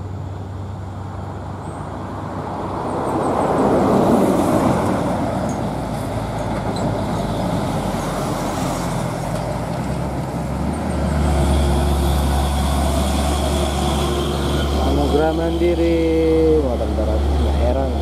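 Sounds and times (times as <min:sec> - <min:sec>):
tyre and road noise: 0:00.0 - 0:18.0
truck diesel engine running: 0:05.6 - 0:18.0.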